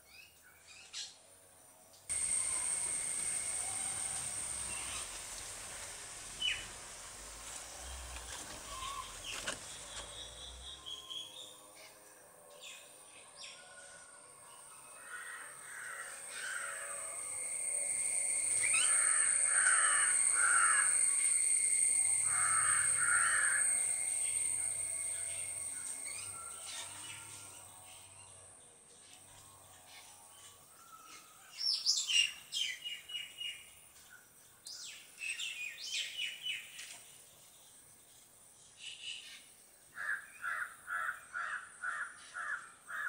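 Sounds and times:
high-pitched drone: 0:02.1 - 0:06.8, 0:16.0 - 0:28.2
crow cawing: 0:15.0 - 0:17.0, 0:18.8 - 0:21.2, 0:22.2 - 0:24.0, 0:40.0 - 0:43.0.

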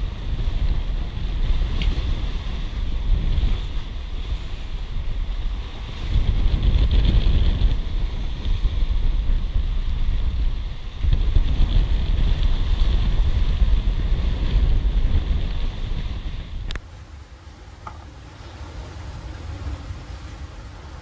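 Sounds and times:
water splashing along hull: 0:00.0 - 0:21.0
wind buffeting microphone: 0:00.0 - 0:21.0.

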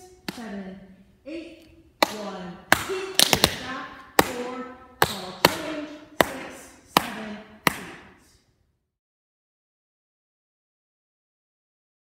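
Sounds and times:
tap shoes on wooden floor: 0:02.0 - 0:04.4.

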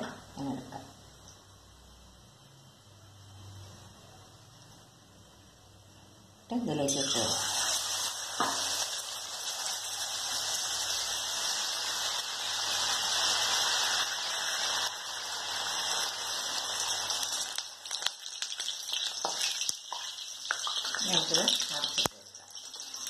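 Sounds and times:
batter deep-frying in hot oil: 0:00.0 - 0:23.0.

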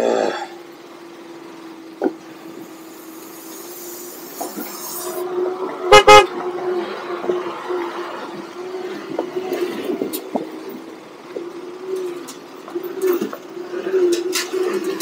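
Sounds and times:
motorcycle engine running: 0:00.0 - 0:15.0
horn toots: 0:04.4 - 0:06.4.

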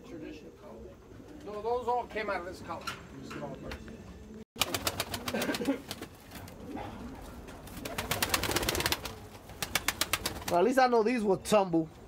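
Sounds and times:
pigeons cooing: 0:04.0 - 0:10.5
wing claps and flapping: 0:04.6 - 0:06.6, 0:07.6 - 0:10.6.

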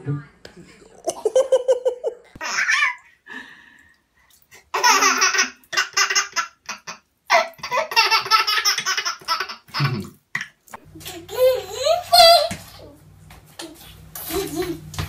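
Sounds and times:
baby laughing: 0:01.1 - 0:03.1, 0:04.7 - 0:12.6.

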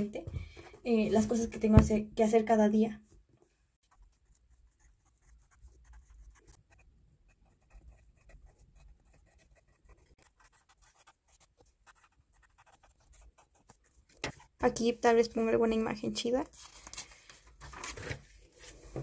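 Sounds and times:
pen scratching on paper: 0:03.9 - 0:14.6.

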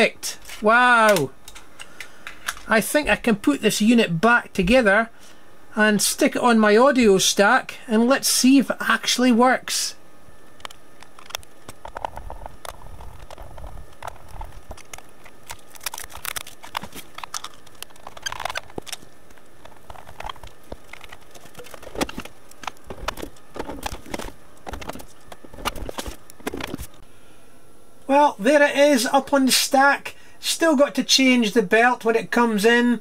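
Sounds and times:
hands handling a disc deck: 0:11.0 - 0:27.0.

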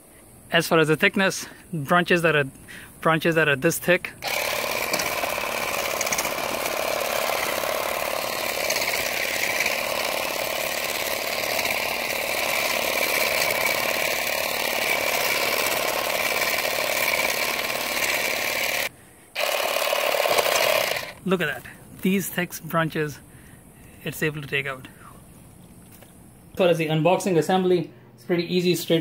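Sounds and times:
cordless shear buzzing: 0:04.2 - 0:21.3.

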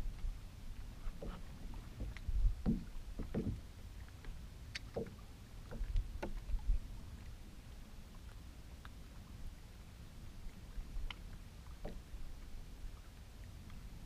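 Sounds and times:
waves slapping against boat hull: 0:00.0 - 0:07.4, 0:10.5 - 0:14.0
wind rumble on microphone: 0:00.0 - 0:14.0.

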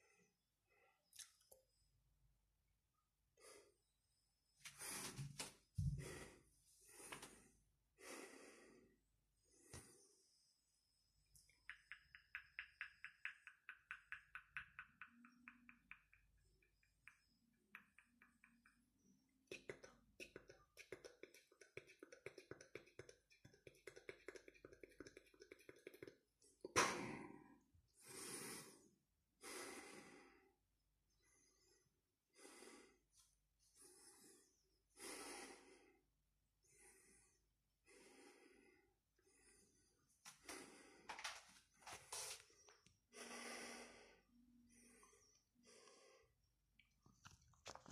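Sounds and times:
man breathing heavily: 0:04.7 - 0:10.5, 0:31.2 - 0:36.0, 0:36.7 - 0:46.4.

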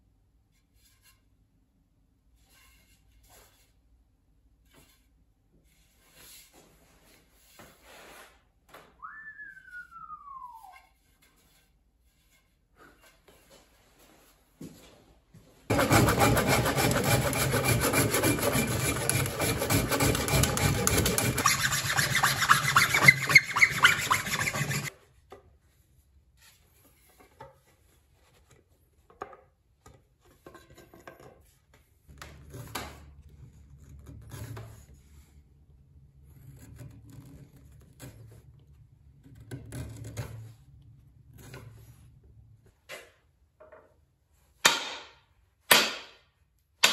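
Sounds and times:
chisel clicking and scraping wood: 0:15.7 - 0:24.9, 0:36.3 - 0:38.4
tool scraping wood fast: 0:15.7 - 0:24.9.

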